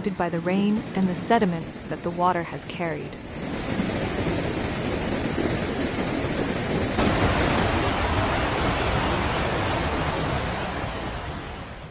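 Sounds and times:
floodwater rushing through street: 7.0s - 11.9s.

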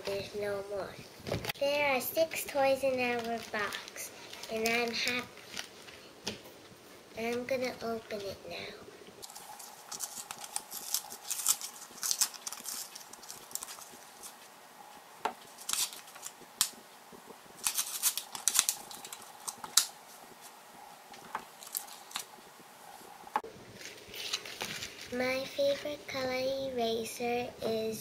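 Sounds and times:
plastic packaging crinkling and tearing: 3.0s - 6.1s, 9.2s - 14.5s, 15.4s - 16.8s, 17.5s - 20.6s, 21.2s - 22.4s, 23.8s - 25.4s.

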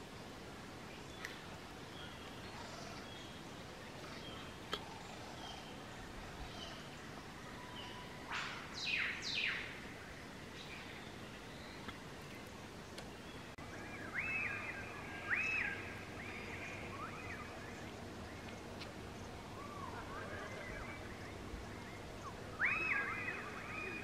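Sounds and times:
birds whistling calls: 7.6s - 9.8s, 13.2s - 18.6s, 19.2s - 24.0s
soft low bird call: 13.4s - 24.0s.

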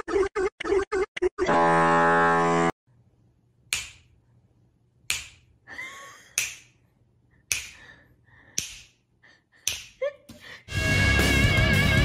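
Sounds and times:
sharp snapping clicks: 3.7s - 4.1s, 5.1s - 5.5s, 6.4s - 6.8s, 7.5s - 7.8s, 8.5s - 9.0s, 9.6s - 10.0s.

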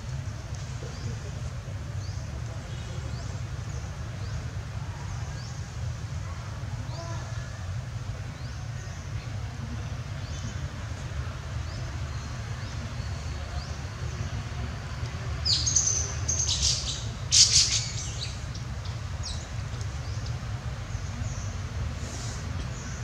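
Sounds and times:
birds chirping: 10.1s - 23.0s.

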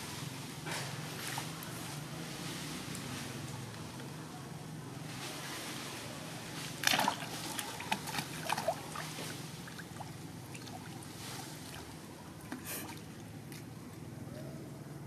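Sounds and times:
splashing in muddy water: 6.8s - 11.9s.

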